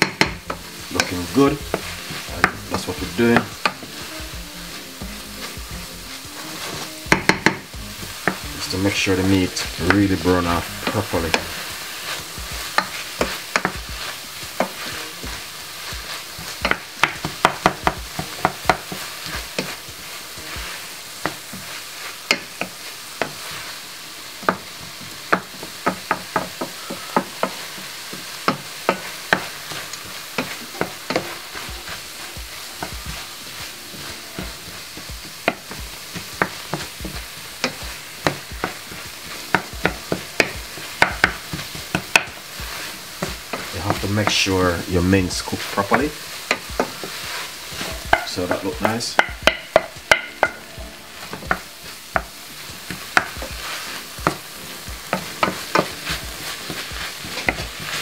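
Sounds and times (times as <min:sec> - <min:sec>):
spoon tapping against a pan: 0:00.0 - 0:01.1, 0:06.6 - 0:08.4, 0:12.1 - 0:21.7, 0:24.4 - 0:33.7, 0:34.4 - 0:44.4, 0:46.3 - 0:50.7, 0:51.3 - 0:58.0
meat and onions sizzling in a pan: 0:00.0 - 0:58.0
wooden spoon scraping a pan: 0:00.0 - 0:58.0.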